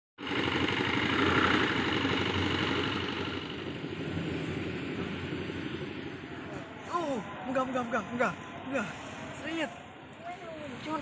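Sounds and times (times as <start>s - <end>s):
vehicle engine idling: 0.2s - 6.2s.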